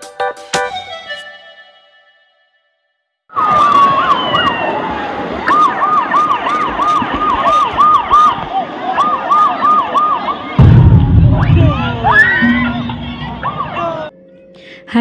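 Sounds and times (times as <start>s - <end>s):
siren-like warbling tone: 10.6s - 14.1s.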